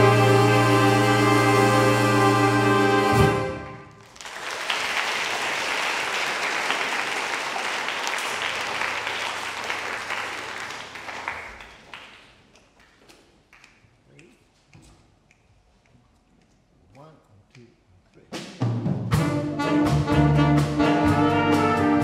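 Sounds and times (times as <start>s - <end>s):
audience applauding: 4.0s - 13.6s.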